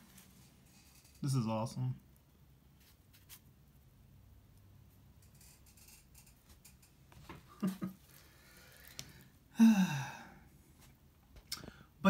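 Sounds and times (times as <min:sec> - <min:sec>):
man's drawn-out vocal exclamation: 0:09.6 - 0:10.2.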